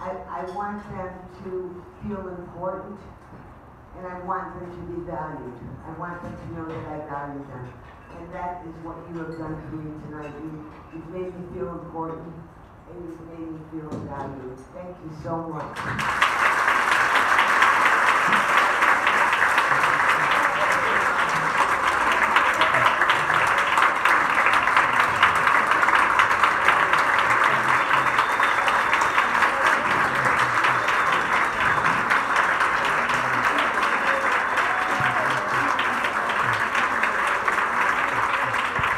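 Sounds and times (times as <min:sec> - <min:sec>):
audience clapping: 0:15.8 - 0:38.9.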